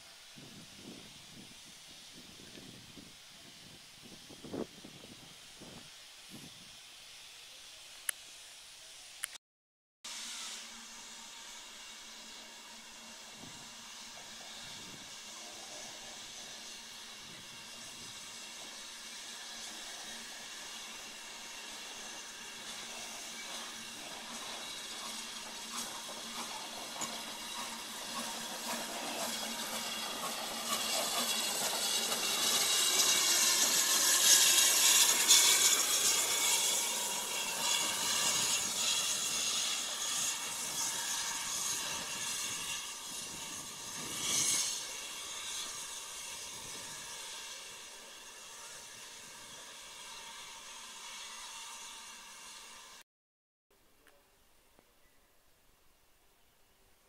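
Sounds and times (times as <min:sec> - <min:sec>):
steam locomotive passing: 0:00.0 - 0:09.2, 0:10.1 - 0:53.0
steam hissing: 0:00.0 - 0:09.3, 0:10.1 - 0:53.0.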